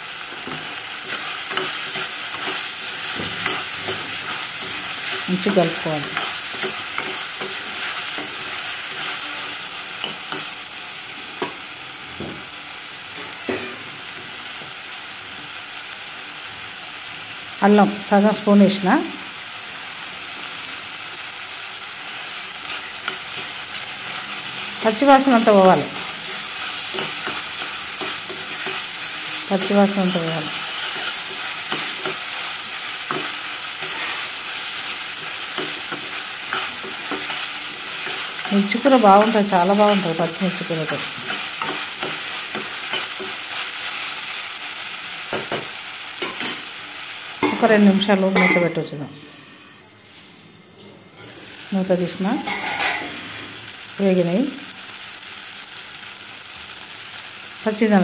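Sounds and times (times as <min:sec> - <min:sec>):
onions sizzling in hot oil: 0:00.0 - 0:50.4, 0:51.1 - 0:58.0
steel spoon scraping pan: 0:52.4 - 0:53.1.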